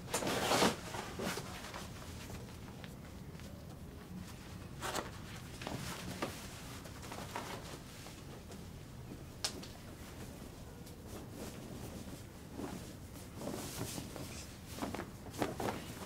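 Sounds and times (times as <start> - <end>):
low room hum: 0.0 - 16.0
clothing rustling: 9.9 - 16.0.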